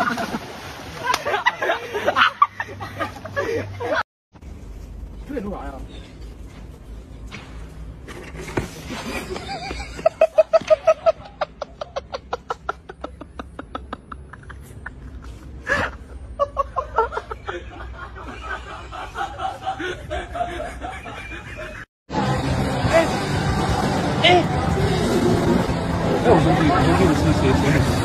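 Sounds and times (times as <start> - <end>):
music: 22.1 - 28.0.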